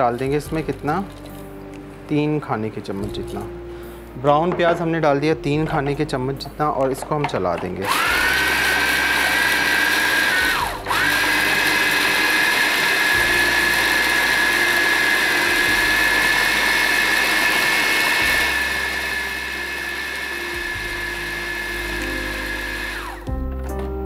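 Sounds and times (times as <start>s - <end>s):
food processor motor whining: 7.6s - 23.3s.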